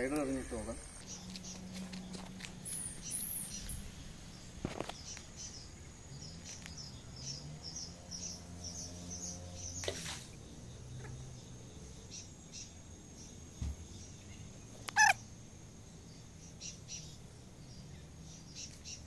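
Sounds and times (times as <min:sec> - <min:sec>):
small bird chirping: 0:00.0 - 0:19.0.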